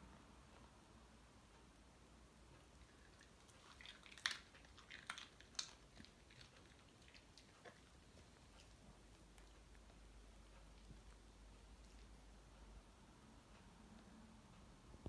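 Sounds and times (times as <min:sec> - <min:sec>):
dog crunching a biscuit: 0:02.8 - 0:08.8.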